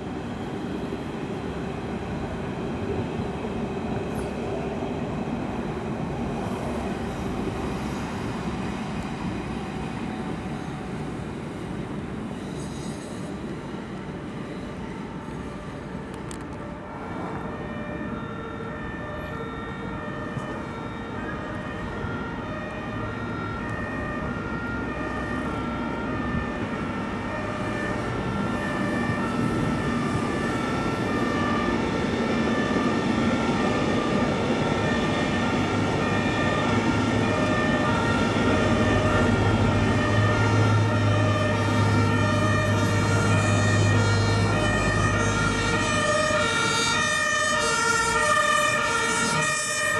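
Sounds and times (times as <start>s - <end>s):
emergency vehicle siren: 13.8s - 49.9s.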